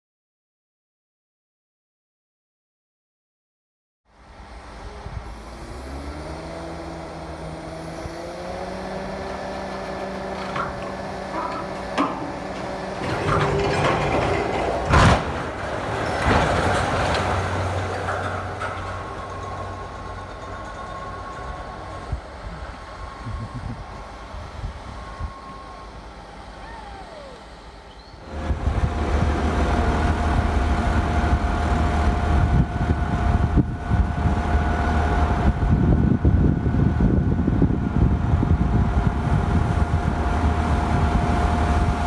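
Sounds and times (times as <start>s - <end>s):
engine revving: 5.3s - 17.9s
rumbling noise: 8.4s - 25.1s, 28.3s - 42.0s.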